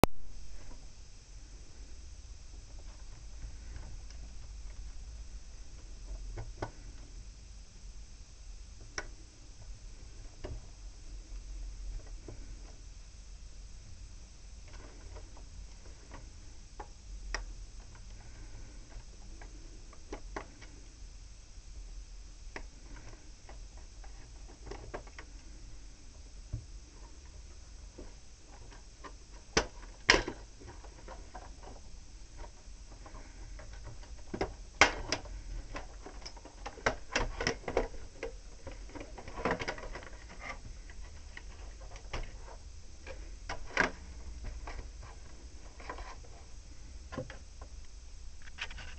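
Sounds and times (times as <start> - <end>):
plastic clicks and scrapes: 48.4 - 48.9.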